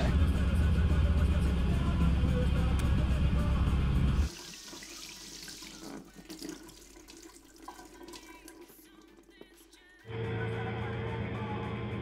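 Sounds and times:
car engine rumbling: 0.0s - 4.2s
tap running water into sink: 4.3s - 9.7s.

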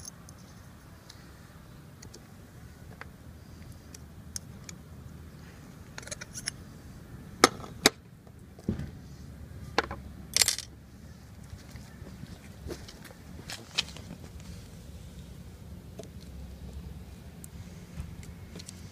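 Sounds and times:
metal parts clicking and clinking: 6.0s - 6.6s, 10.3s - 10.7s.

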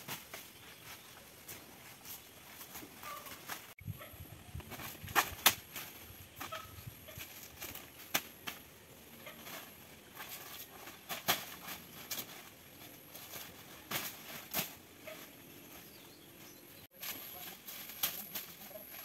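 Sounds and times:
dry leaves crackling: 4.7s - 19.0s.

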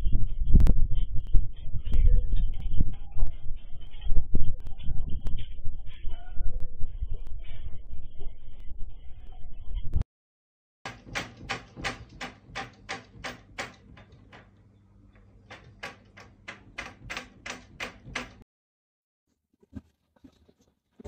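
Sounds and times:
wardrobe doors rattling: 10.9s - 18.4s.

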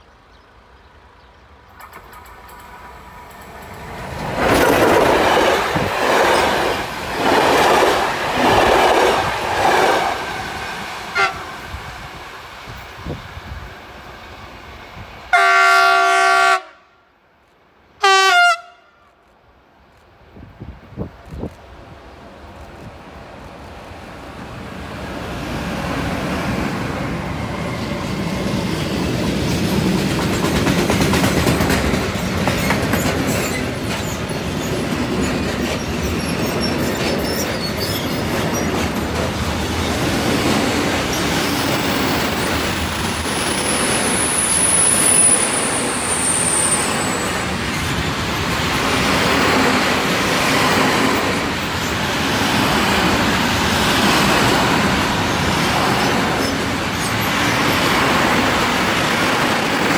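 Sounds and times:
wheels rumbling on rail: 0.6s - 16.0s, 19.8s - 59.9s
high wheel squeal: 35.8s - 38.8s, 43.3s - 47.9s.

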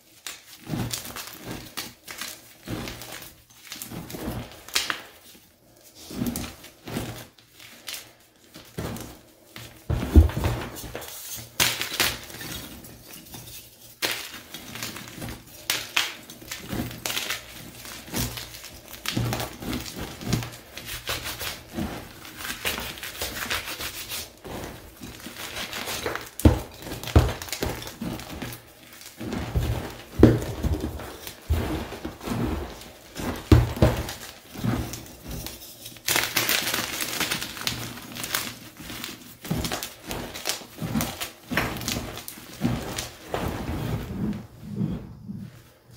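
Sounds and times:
chalk crunching by hand: 13.9s - 35.4s.

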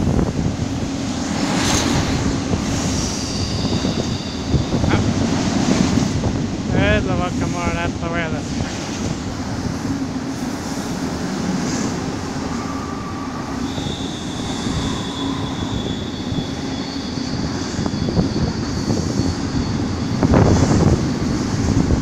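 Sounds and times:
freight train rumbling past: 0.0s - 22.0s
high wheel squeals: 2.8s - 5.2s, 12.1s - 21.0s.

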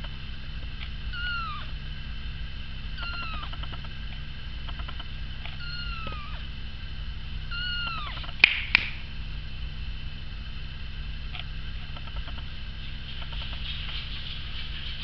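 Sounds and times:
kitten meowing: 1.1s - 1.7s, 3.0s - 3.6s, 5.6s - 6.4s, 7.5s - 8.3s
sharp snap: 8.4s - 9.1s.

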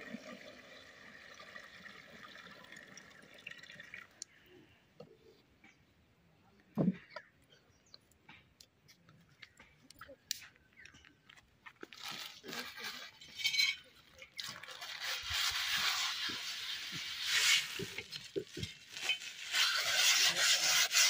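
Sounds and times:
metal griddle scrubbed with cloth: 14.8s - 21.0s.

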